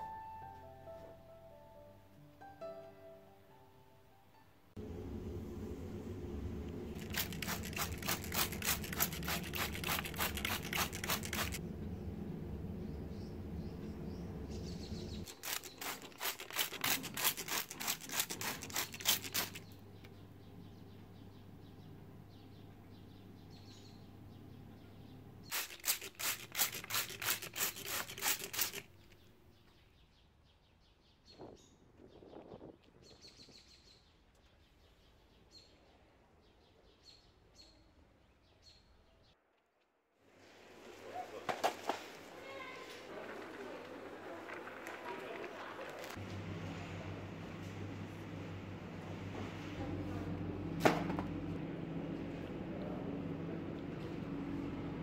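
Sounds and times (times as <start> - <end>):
spray bottle squirts: 7.0 - 11.6, 15.3 - 19.7, 25.5 - 29.1.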